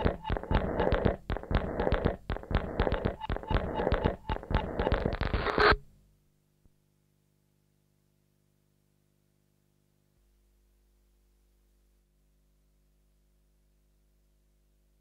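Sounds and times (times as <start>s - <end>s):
electronic clicks and crackles: 0.0s - 5.9s.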